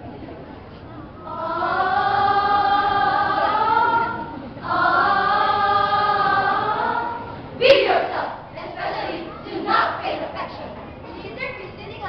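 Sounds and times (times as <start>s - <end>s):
children's choir singing: 1.0s - 10.7s.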